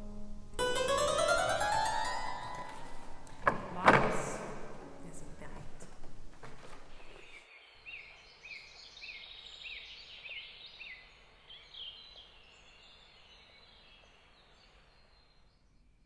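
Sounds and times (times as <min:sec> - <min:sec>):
faint background hiss: 0:00.0 - 0:16.0
birds singing: 0:06.9 - 0:15.7.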